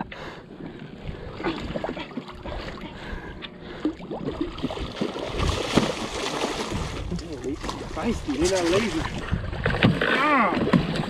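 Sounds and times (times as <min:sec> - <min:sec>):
water noise: 0:00.0 - 0:11.0
wind: 0:00.0 - 0:11.0
fish thrashing and splashing: 0:04.0 - 0:11.0.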